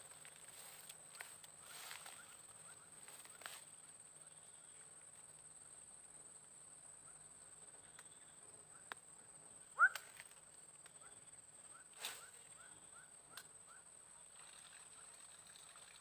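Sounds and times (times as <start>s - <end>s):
fishing lure whistling through air: 9.8s - 10.1s.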